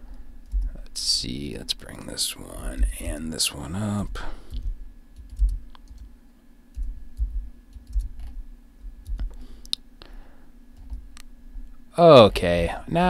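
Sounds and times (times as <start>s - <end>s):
soft low thumps: 0.0s - 0.8s, 2.6s - 3.2s, 4.0s - 6.1s, 6.8s - 9.4s.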